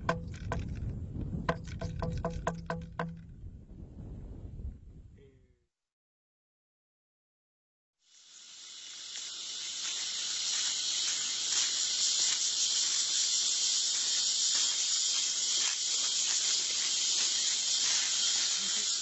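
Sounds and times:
high-pitched insect chorus: 0:08.1 - 0:19.0.

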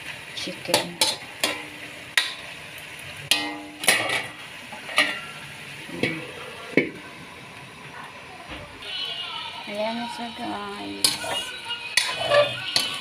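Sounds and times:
light sizzle of frying: 0:00.0 - 0:13.0
metal spatula scraping a wok: 0:00.6 - 0:02.5, 0:03.3 - 0:05.4, 0:10.2 - 0:13.0.

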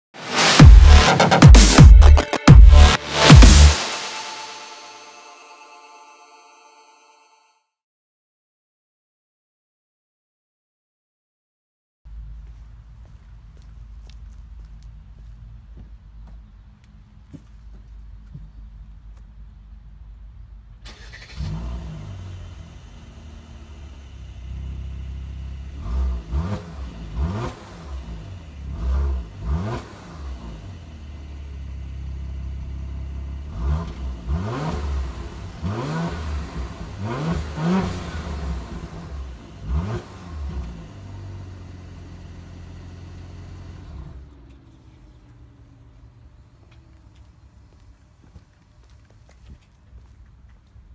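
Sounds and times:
car engine revving: 0:00.2 - 0:04.4, 0:20.8 - 0:46.2.

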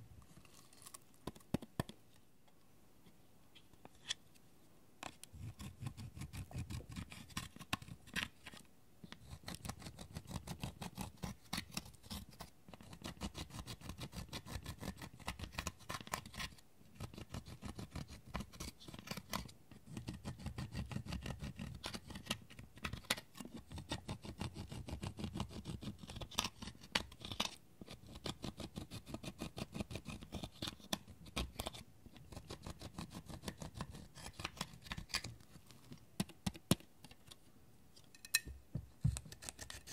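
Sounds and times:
tool scraping eyeshadow powder: 0:05.0 - 0:08.5, 0:09.1 - 0:35.3, 0:39.1 - 0:39.9.

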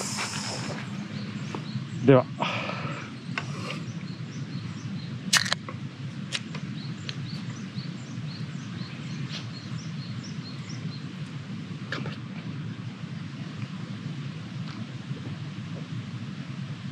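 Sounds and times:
low outdoor rumble: 0:00.0 - 0:16.9
beer can cracking open: 0:05.3 - 0:05.6.

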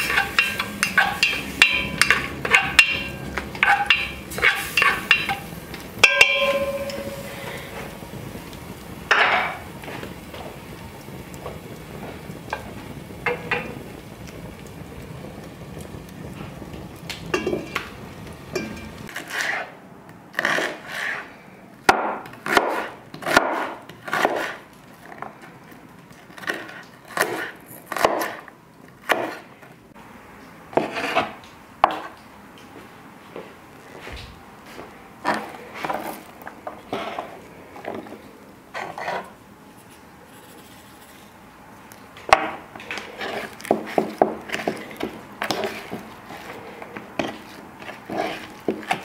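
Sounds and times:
wood fire crackling: 0:00.0 - 0:49.0
knife chopping onions on board: 0:21.9 - 0:24.6, 0:26.3 - 0:29.5, 0:43.2 - 0:49.0.

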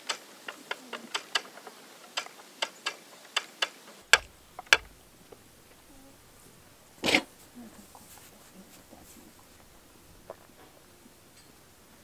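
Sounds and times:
wooden spinning wheel clicking: 0:00.0 - 0:05.8.

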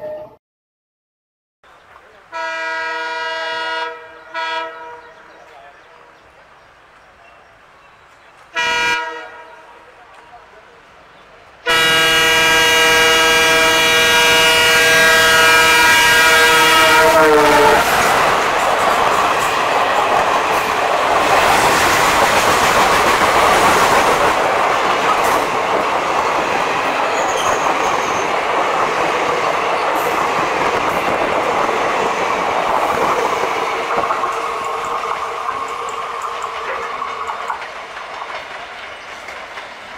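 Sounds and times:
train wheels roaring on rails: 0:01.7 - 0:39.9
clickety-clack over rail joints: 0:10.0 - 0:10.8, 0:17.7 - 0:39.9.

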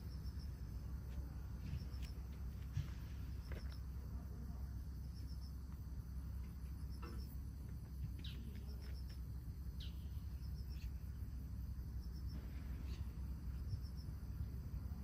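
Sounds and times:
crickets chirping: 0:00.0 - 0:15.0
steady low rumble: 0:00.0 - 0:15.0
bird chirps: 0:08.2 - 0:09.2, 0:09.8 - 0:11.2, 0:12.1 - 0:14.0.

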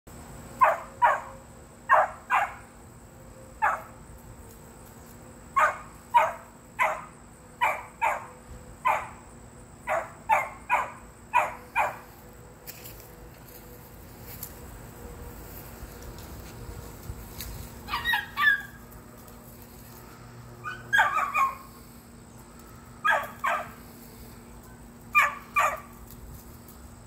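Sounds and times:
puppies barking in high yips: 0:00.6 - 0:02.7, 0:05.6 - 0:09.2, 0:09.9 - 0:12.1, 0:17.8 - 0:19.0, 0:20.6 - 0:21.8, 0:23.0 - 0:23.8, 0:25.1 - 0:26.2.

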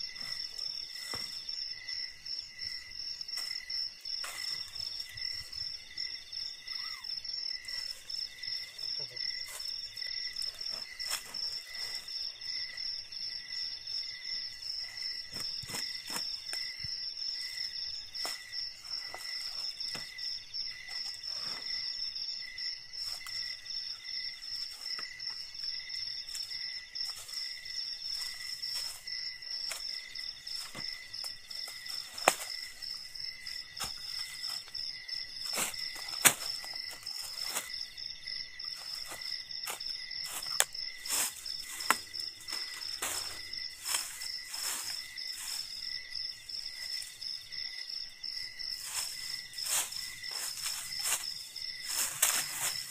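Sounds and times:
insects trilling: 0:00.0 - 0:52.9
rustling on dry leaf litter: 0:28.1 - 0:37.9, 0:38.8 - 0:45.9, 0:48.8 - 0:52.9.

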